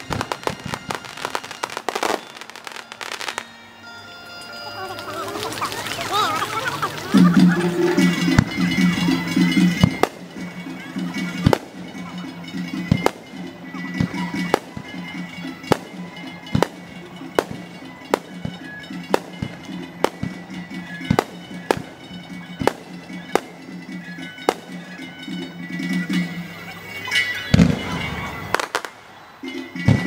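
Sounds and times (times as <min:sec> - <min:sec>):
fireworks bursting in sharp bangs: 0:00.0 - 0:03.5, 0:08.1 - 0:24.9, 0:27.4 - 0:30.0
music: 0:00.0 - 0:30.0.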